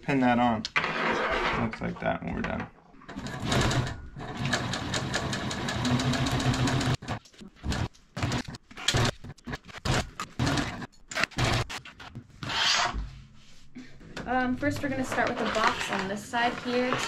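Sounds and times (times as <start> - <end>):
sewing machine stitching: 3.1 - 11.8.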